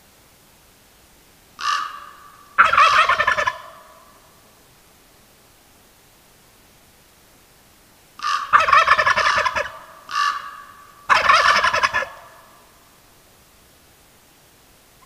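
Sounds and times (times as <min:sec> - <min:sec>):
turkeys gobbling: 0:01.6 - 0:04.2, 0:08.2 - 0:12.6.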